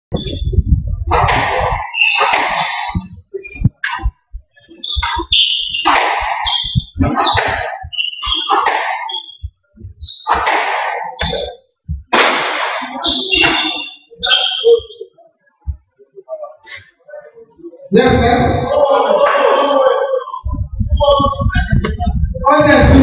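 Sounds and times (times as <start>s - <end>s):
shoes squeaking on wooden floor: 1.6s - 10.5s.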